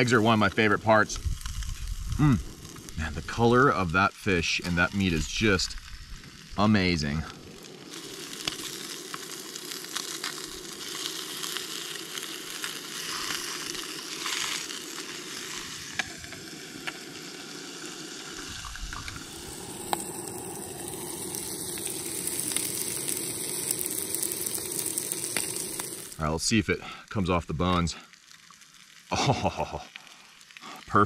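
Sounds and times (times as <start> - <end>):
fish frying in butter: 0.0 - 26.3, 27.8 - 31.0
sharp pops of frying: 7.6 - 26.2.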